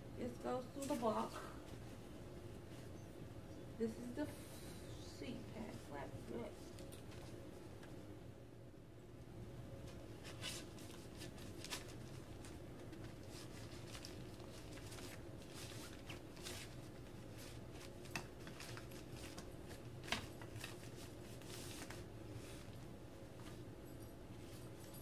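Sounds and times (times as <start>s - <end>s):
fabric rustling and scraping: 9.8s - 25.0s.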